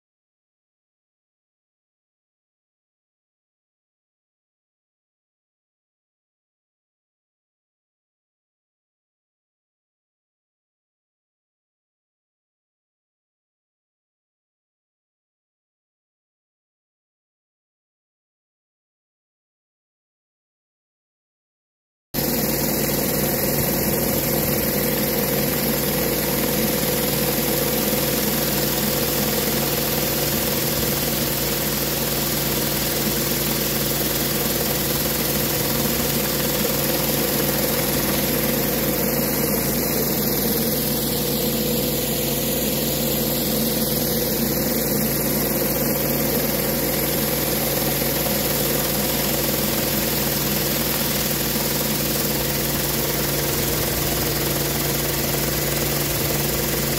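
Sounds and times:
high-pressure water spraying: 0:22.2 - 0:56.9
petrol engine running: 0:22.2 - 0:56.9.

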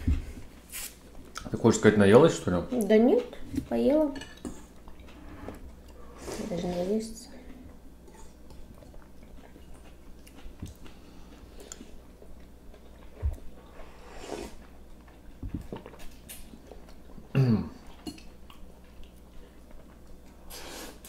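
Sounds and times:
person chewing noodles: 0:07.7 - 0:21.0.

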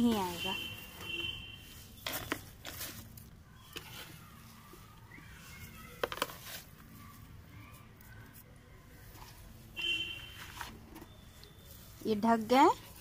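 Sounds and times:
soil rustling and crumbling: 0:00.0 - 0:07.3.

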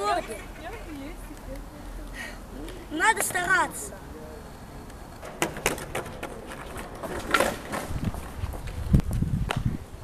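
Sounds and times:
skateboard wheels rumbling: 0:05.0 - 0:10.0
skateboard clacks and knocks: 0:05.2 - 0:08.1.

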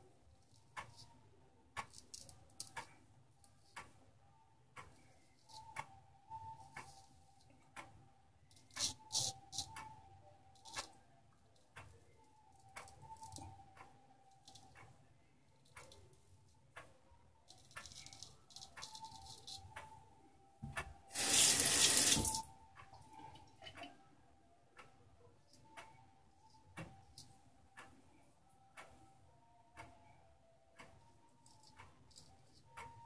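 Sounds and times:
wall clock ticking: 0:00.6 - 0:01.1, 0:01.7 - 0:03.0, 0:03.7 - 0:04.0, 0:04.7 - 0:11.0, 0:11.7 - 0:15.0, 0:15.6 - 0:24.0, 0:24.7 - 0:33.0
tap running into sink: 0:20.6 - 0:22.4.

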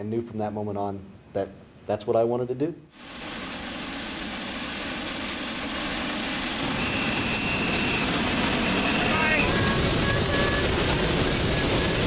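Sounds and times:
propane burners firing: 0:03.0 - 0:12.0.

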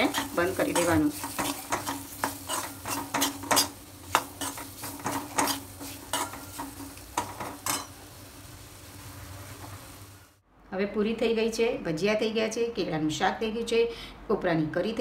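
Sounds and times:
steel spoon scraping a pan: 0:00.0 - 0:08.0
faint sizzle: 0:00.0 - 0:10.4.

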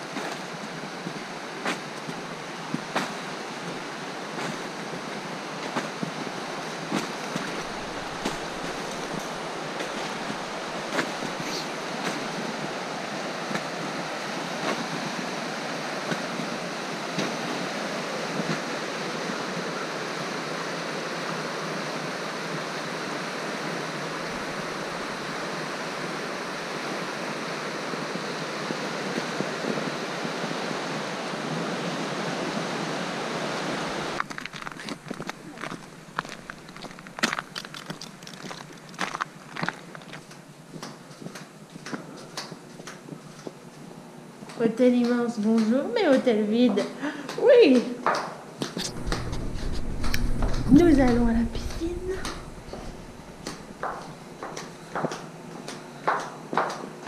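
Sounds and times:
river rapids rushing over rocks: 0:00.0 - 0:19.6
footsteps crunching in snow: 0:07.0 - 0:12.3, 0:34.2 - 0:40.3.

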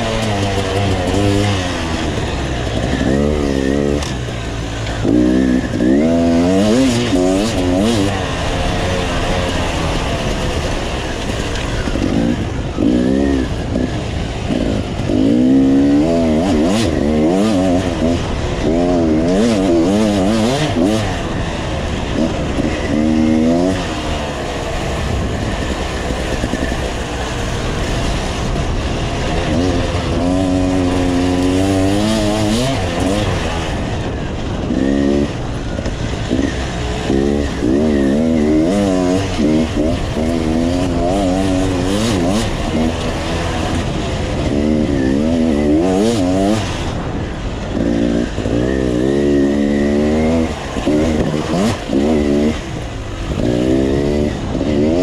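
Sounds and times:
motorcycle engine revving: 0:00.0 - 0:55.0
wind and riding noise: 0:00.0 - 0:55.0.

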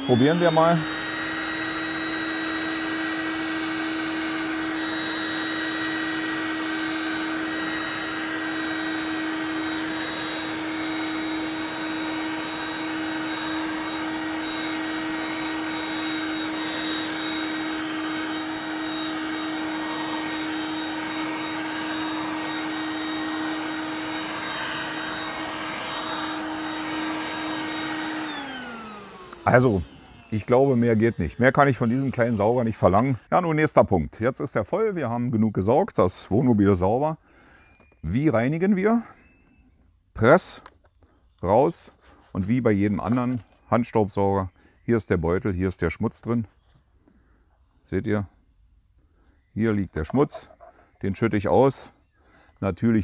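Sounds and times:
handheld vacuum cleaner running: 0:00.0 - 0:33.2.

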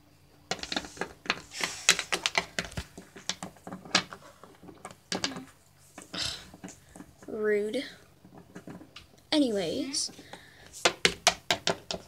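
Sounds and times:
plastic figurines clacking on wood: 0:00.5 - 0:07.3, 0:08.2 - 0:09.2, 0:10.1 - 0:12.0.

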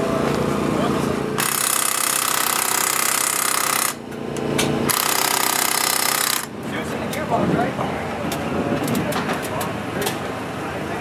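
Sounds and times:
pneumatic impact wrench rattling: 0:01.4 - 0:06.5.

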